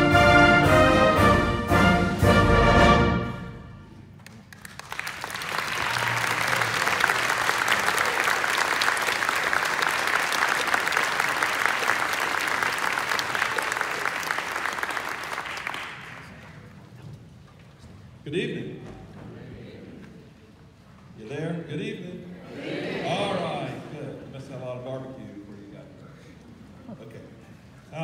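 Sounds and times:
audience applause: 4.2s - 16.7s.

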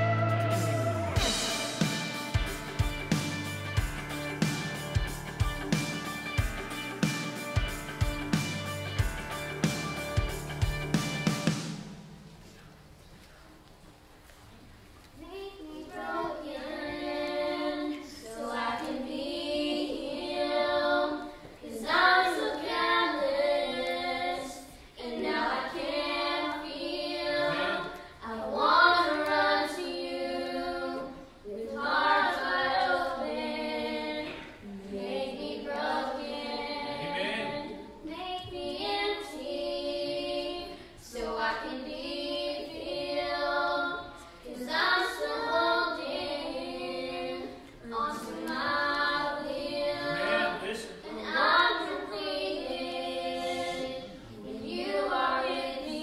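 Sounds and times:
children singing unaccompanied: 15.2s - 56.0s.

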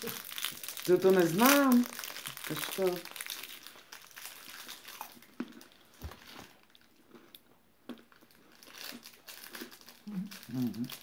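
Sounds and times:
packages and plastic tubs handled: 0.0s - 6.8s.

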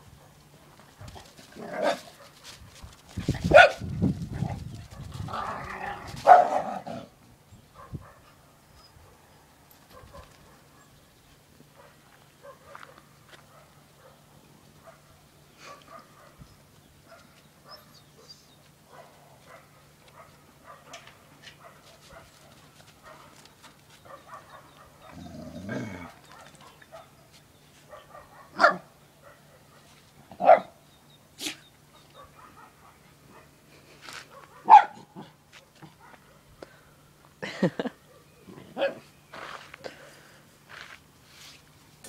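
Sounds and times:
dogs scuffling: 0.4s - 6.8s, 21.1s - 24.9s
dogs barking: 3.5s - 3.9s, 4.9s - 7.1s, 7.7s - 8.4s, 9.9s - 10.9s, 11.7s - 16.4s, 17.0s - 23.4s, 24.0s - 30.8s, 31.4s - 33.6s, 34.3s - 36.5s.

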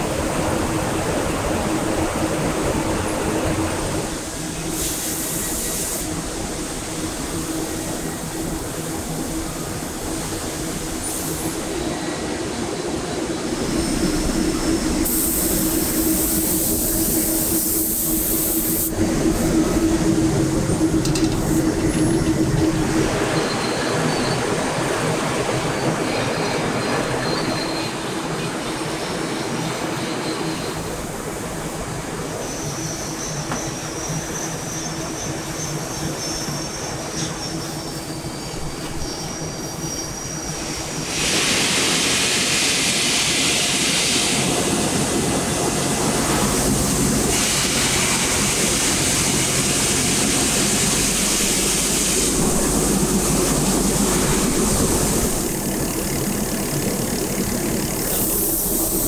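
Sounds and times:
spray gun hissing: 15.0s - 18.9s.

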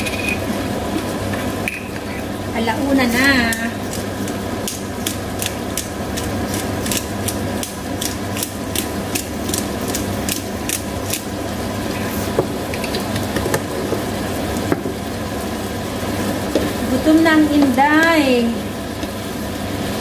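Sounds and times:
pepper mill grinding clicks: 3.5s - 11.3s.

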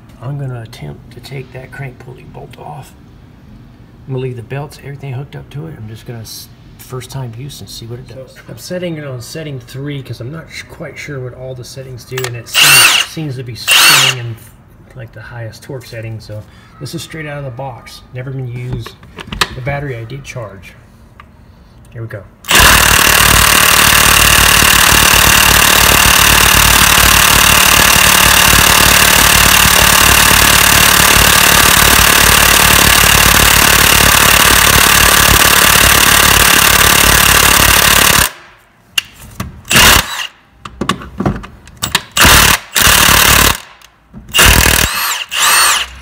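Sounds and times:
impact wrench hammering: 12.6s - 13.1s, 13.7s - 14.2s, 22.5s - 38.4s, 39.7s - 41.0s, 41.8s - 46.0s.

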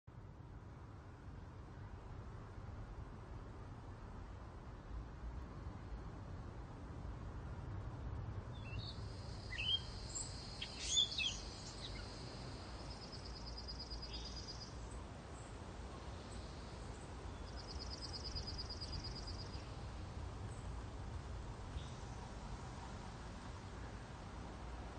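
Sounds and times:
outdoor ambience: 0.1s - 24.9s
birds chirping: 8.6s - 12.2s
sharp bird calls: 8.6s - 12.2s
rapid high bird trill: 9.5s - 12.2s.

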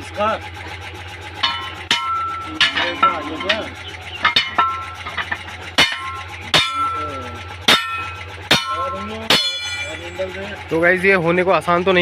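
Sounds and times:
hammer clanging on steel: 1.4s - 10.4s.

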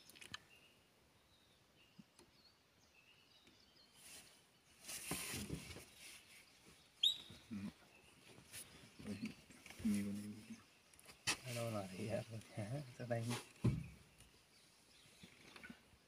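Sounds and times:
faint bird chirps: 5.8s - 16.0s.

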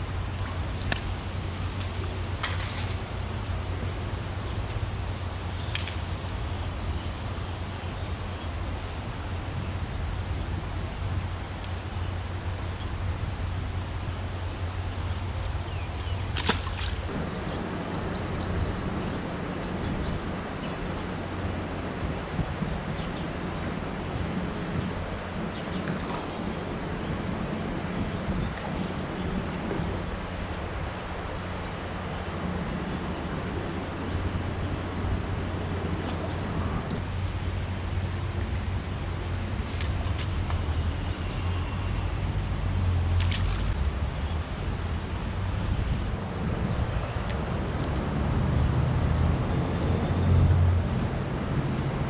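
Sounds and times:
rushing water background: 0.0s - 52.0s
traffic rumble on a bridge: 0.0s - 52.0s
wind on the microphone: 0.0s - 52.0s
fish splashing into water: 16.3s - 17.1s.

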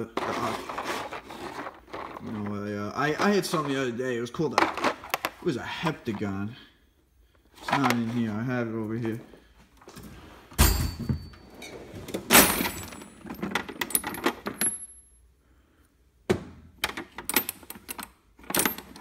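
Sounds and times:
metal tools clinking in drawer: 10.6s - 15.1s, 17.2s - 19.0s.

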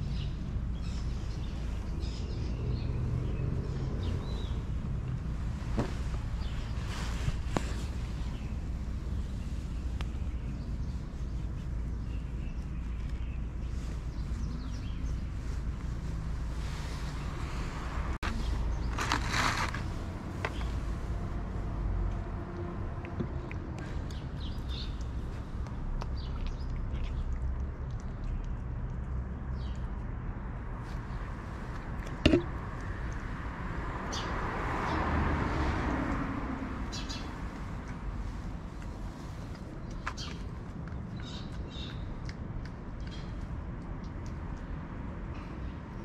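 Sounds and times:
wind rumble on microphone: 0.0s - 46.0s
car passing: 15.4s - 23.1s, 30.7s - 39.5s.

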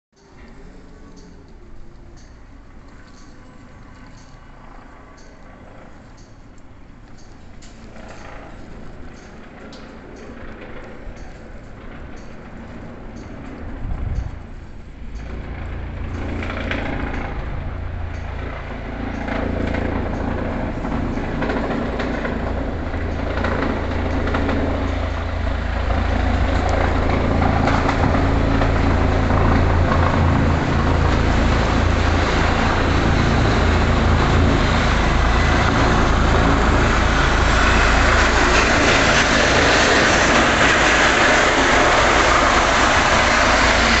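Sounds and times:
helicopter rotor rumble: 0.5s - 44.0s
hissing turbine: 22.8s - 44.0s.

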